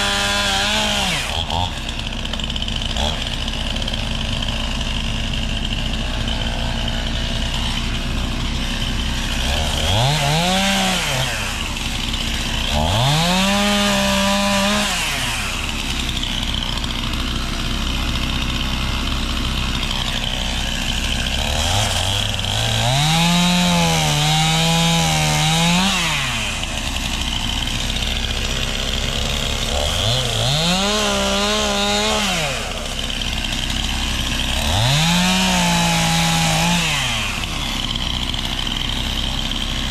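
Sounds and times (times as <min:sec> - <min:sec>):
chainsaw revving and idling: 0:00.0 - 0:39.9.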